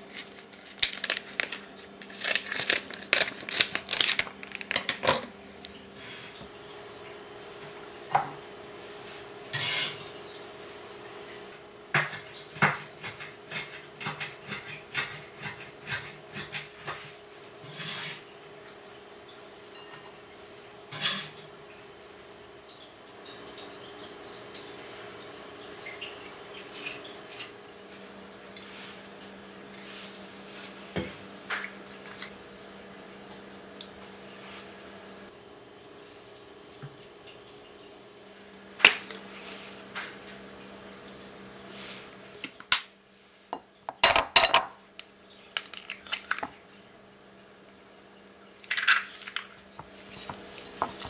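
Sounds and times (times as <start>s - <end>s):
dishes and utensils clinking: 43.9s - 44.8s.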